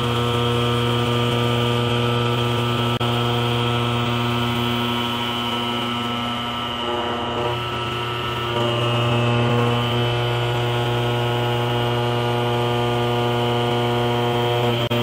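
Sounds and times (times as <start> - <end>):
milling machine cutter droning: 0.0 - 15.0.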